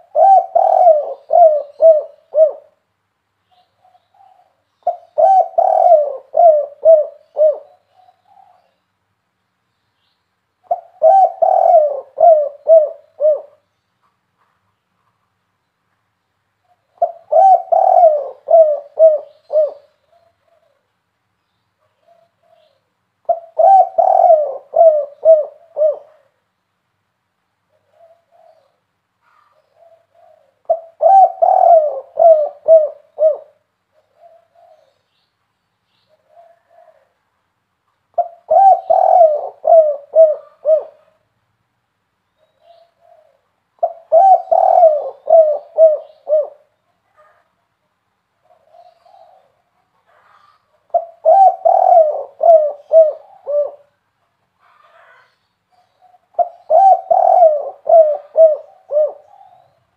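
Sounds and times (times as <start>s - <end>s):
dove cooing: 0.0s - 2.8s, 3.5s - 8.8s, 10.6s - 13.6s, 16.6s - 20.9s, 21.8s - 26.4s, 27.7s - 35.0s, 36.1s - 37.2s, 38.1s - 41.2s, 42.4s - 47.5s, 48.4s - 54.0s, 54.6s - 59.9s.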